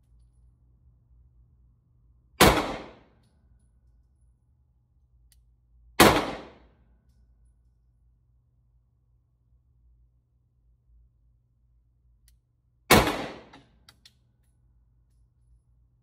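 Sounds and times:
pistol shots: 0:02.4 - 0:03.1, 0:06.0 - 0:06.7, 0:12.9 - 0:13.6.

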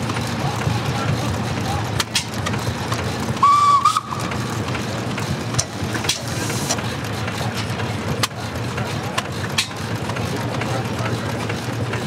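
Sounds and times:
old stationary engine running: 0:00.0 - 0:12.0
high whistle-like tone: 0:03.4 - 0:04.2.

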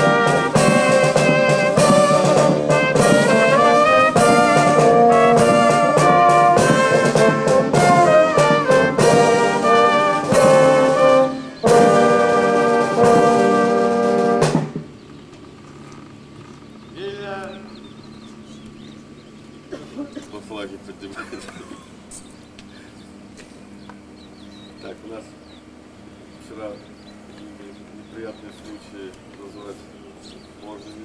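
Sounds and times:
brass chords: 0:00.0 - 0:14.9.

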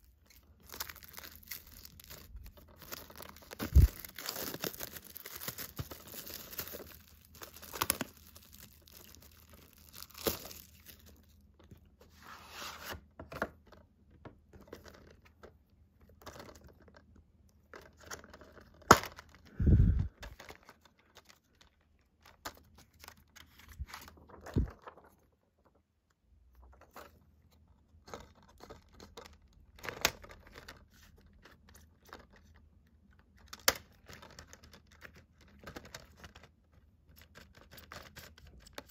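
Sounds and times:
plastic wrap crinkling and tearing: 0:00.0 - 0:11.4.

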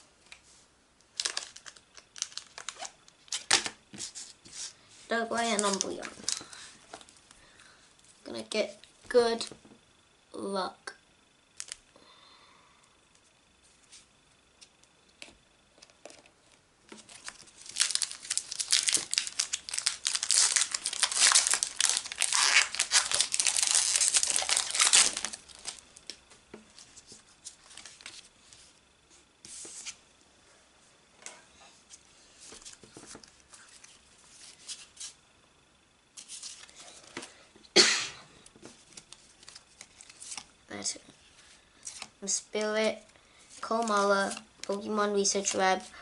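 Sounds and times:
foil wrapper crinkling and tearing: 0:01.1 - 0:03.7, 0:05.4 - 0:06.6, 0:11.6 - 0:11.8, 0:17.0 - 0:25.8
cards rustling: 0:01.2 - 0:04.6, 0:05.4 - 0:07.1, 0:16.9 - 0:25.8, 0:38.7 - 0:40.5, 0:41.8 - 0:45.6.

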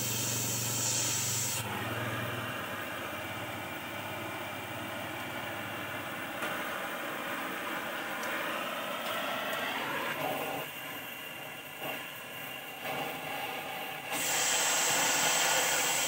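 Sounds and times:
cutting torch hissing: 0:00.0 - 0:02.1, 0:07.3 - 0:16.0.

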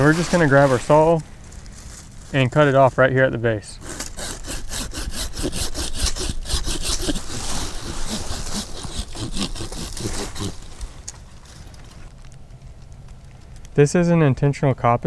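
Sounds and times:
hand saw cutting wood: 0:03.8 - 0:11.0.

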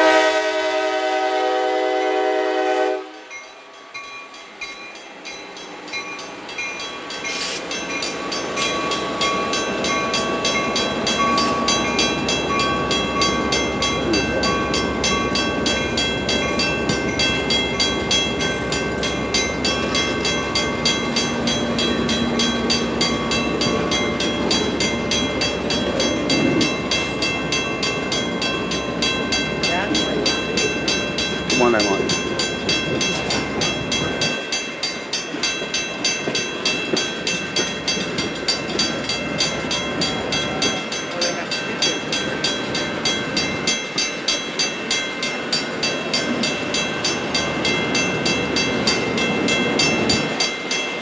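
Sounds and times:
train horn: 0:00.0 - 0:03.3.

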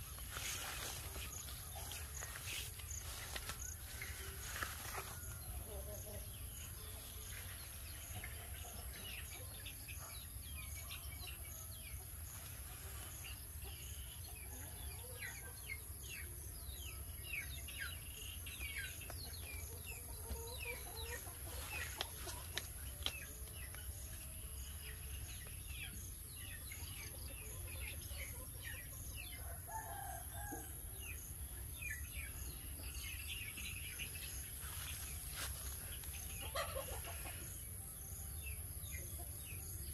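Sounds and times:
chickens clucking: 0:19.0 - 0:24.0, 0:34.6 - 0:37.8.

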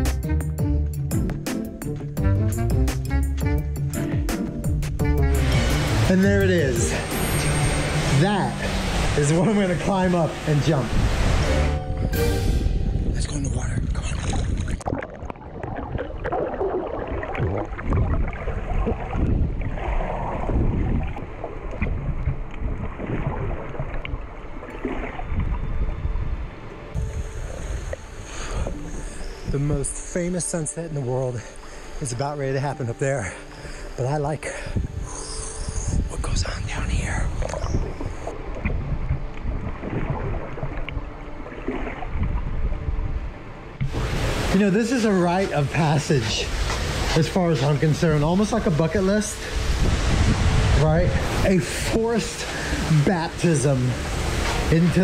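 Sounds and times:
underwater water sloshing: 0:13.5 - 0:35.0, 0:37.1 - 0:55.0
underwater bubbles: 0:14.0 - 0:25.7, 0:37.3 - 0:43.2.

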